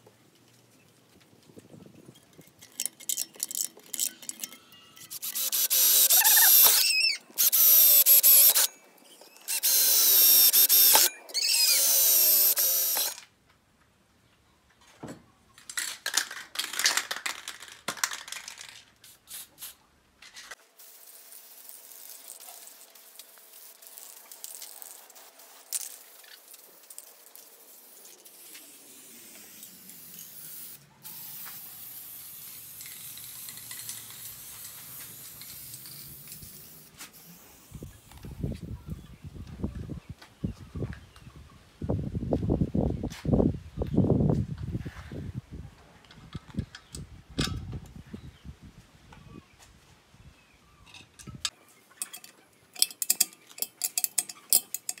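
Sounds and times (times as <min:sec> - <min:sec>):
electric drill boring through steel: 0:05.0 - 0:08.7, 0:09.5 - 0:13.2
aerosol spray can hissing: 0:05.1 - 0:08.7, 0:09.5 - 0:13.1, 0:19.1 - 0:19.8, 0:27.8 - 0:37.9.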